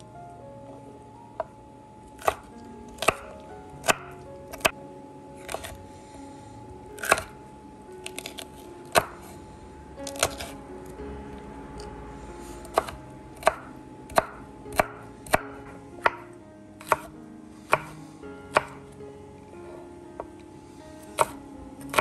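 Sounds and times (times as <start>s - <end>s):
knife chopping on wooden board: 2.2s - 2.4s, 3.0s - 4.7s, 7.0s - 7.4s, 8.1s - 9.2s, 10.1s - 10.6s, 12.7s - 17.1s, 17.7s - 18.8s, 21.2s - 22.0s.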